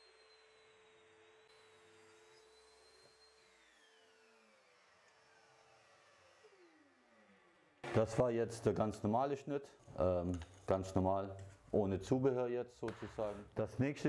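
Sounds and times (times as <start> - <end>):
table saw whine winding down: 0.0 - 8.8.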